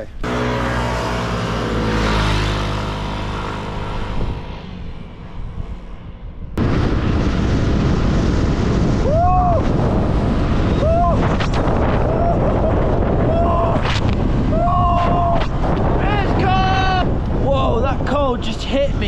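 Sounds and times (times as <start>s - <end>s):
motor scooter passing by: 0.2s - 9.0s
wind rush on microphone: 2.0s - 19.0s.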